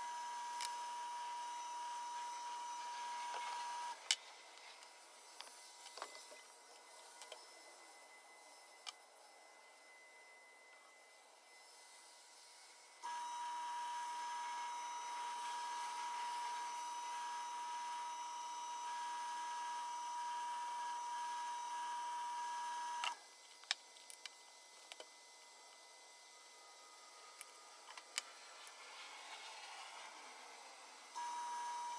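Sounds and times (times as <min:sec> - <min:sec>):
wood lathe motor whine: 0:00.0 - 0:23.2, 0:24.6 - 0:31.9.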